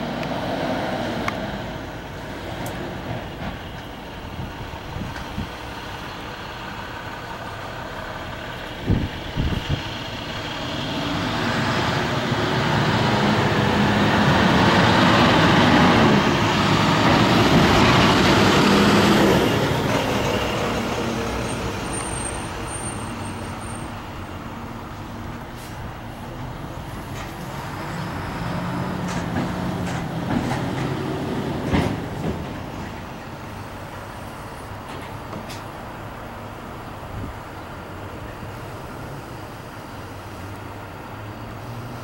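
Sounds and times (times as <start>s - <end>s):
vehicle passing by: 0.0s - 3.2s, 8.8s - 22.6s, 25.5s - 32.8s.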